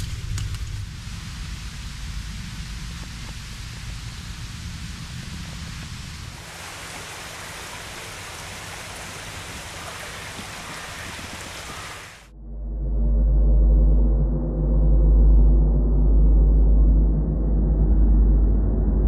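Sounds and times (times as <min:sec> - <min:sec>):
outdoor hiss: 0:00.0 - 0:12.3
low flickering rumble: 0:00.0 - 0:19.0.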